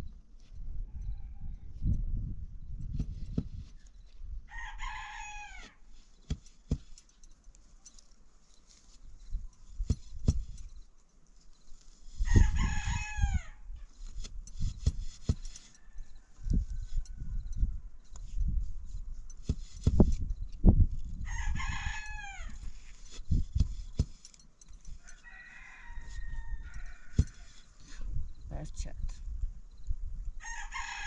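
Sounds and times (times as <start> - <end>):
rooster crowing: 0.8 - 1.8, 4.5 - 5.8, 12.2 - 13.7, 15.7 - 17.5, 21.2 - 22.6, 25.0 - 27.8, 30.4 - 31.0
sharp knocks and taps: 9.9 - 10.6.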